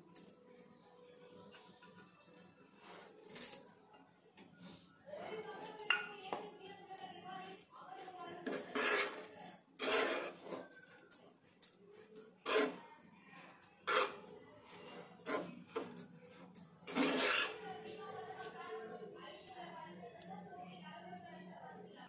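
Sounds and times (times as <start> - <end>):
metal spoon scraping a pan: 7.4 - 18.6.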